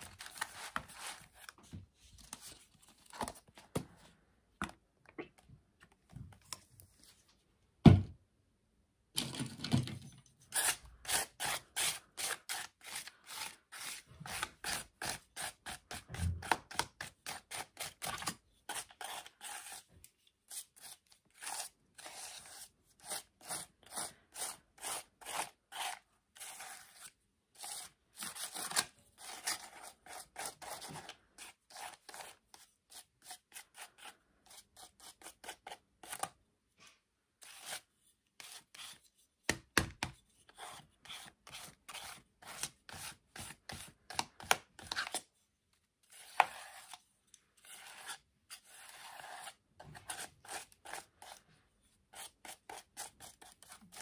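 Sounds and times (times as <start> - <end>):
palette knife scraping paper: 10.5 - 36.3, 37.4 - 39.3, 40.2 - 45.3, 46.0 - 47.0, 47.6 - 54.0.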